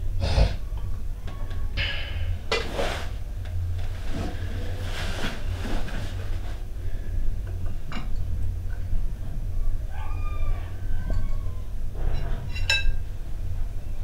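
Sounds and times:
cloth rustling and shuffling: 2.6 - 6.7.

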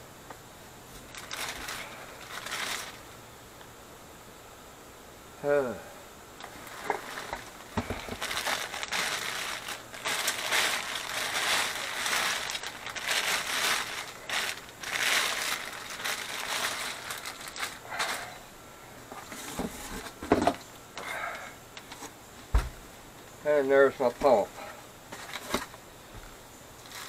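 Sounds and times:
plastic bag crinkling: 1.0 - 3.1, 6.4 - 18.4, 26.8 - 27.0.

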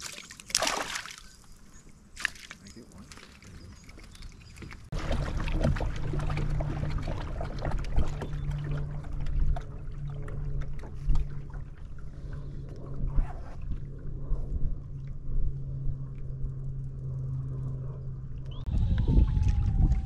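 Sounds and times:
water splashing along hull: 0.0 - 20.0
low motor hum: 1.2 - 20.0
wind on microphone: 5.0 - 20.0.

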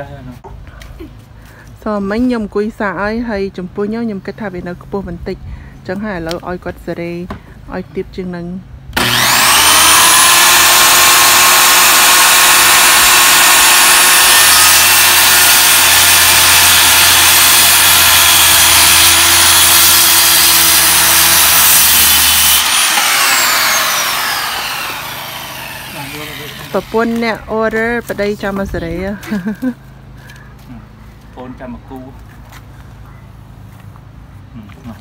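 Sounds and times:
saw blade spinning down whine: 9.0 - 27.5
circular saw cutting wood: 9.0 - 27.6.

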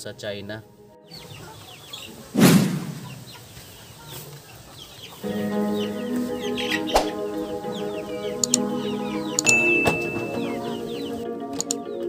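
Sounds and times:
background music with sustained notes: 0.0 - 2.4, 4.9 - 12.0
hens clucking: 1.1 - 11.9.

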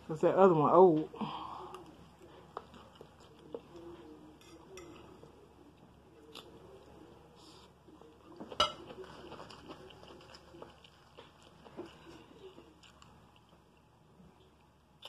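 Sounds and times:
soft chewing: 0.9 - 15.0
fork clinking against plate: 8.4 - 9.0.

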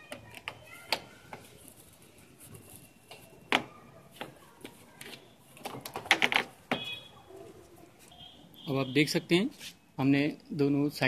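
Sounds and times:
plastic rattling: 5.6 - 6.9.

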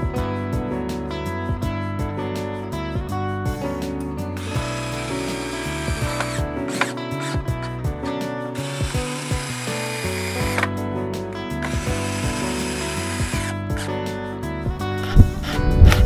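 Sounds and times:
drill driving screws into wood: 4.4 - 7.7, 8.6 - 10.8, 11.5 - 13.9.

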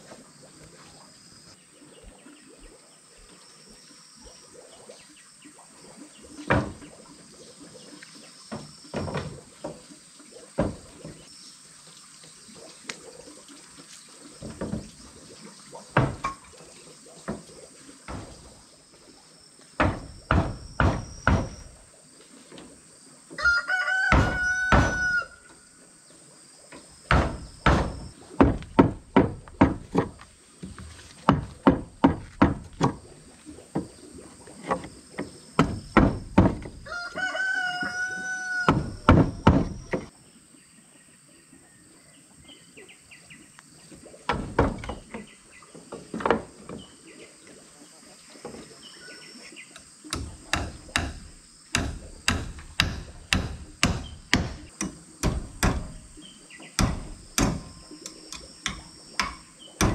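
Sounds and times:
wooden boards knocking: 16.0 - 16.4, 18.1 - 18.5, 19.8 - 21.8, 24.1 - 25.1, 27.1 - 33.0, 35.6 - 36.9, 38.7 - 40.1, 44.3 - 45.1, 50.2 - 56.2, 56.8 - 57.8, 58.7 - 59.9
chisel knocking into wood: 19.8 - 21.6, 50.1 - 56.1, 56.8 - 57.7
rooster crowing: 23.4 - 25.5, 36.8 - 39.1.

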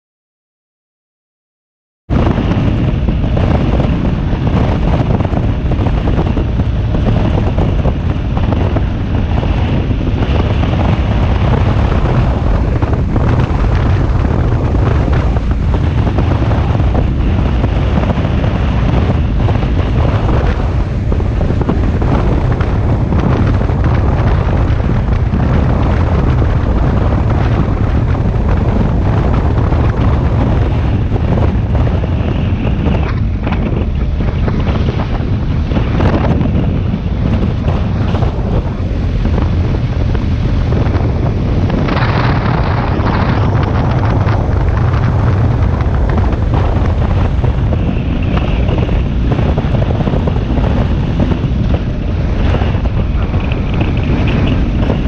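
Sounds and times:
road noise: 2.1 - 55.0
wind buffeting microphone: 2.1 - 55.0.

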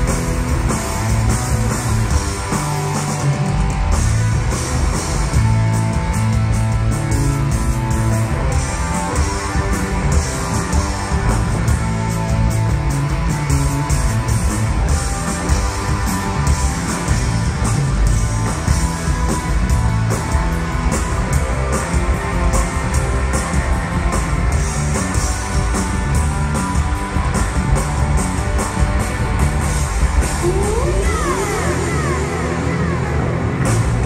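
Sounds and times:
rock band playing: 0.0 - 34.0.

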